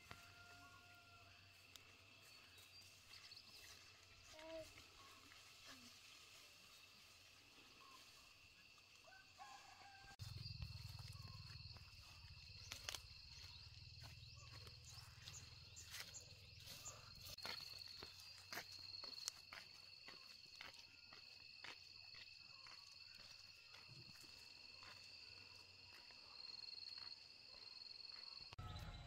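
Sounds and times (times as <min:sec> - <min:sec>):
high insect drone: 0:09.8 - 0:27.0.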